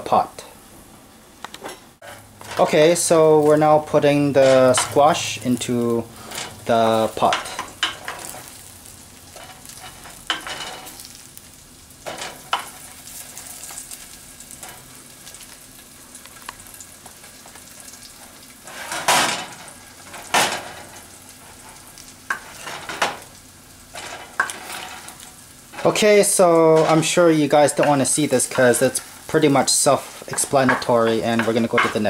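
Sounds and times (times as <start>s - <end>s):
onion sizzling in a pot: 0.0s - 32.0s
knocks and clatters in a pot: 18.7s - 21.0s, 23.9s - 25.9s, 30.3s - 32.0s.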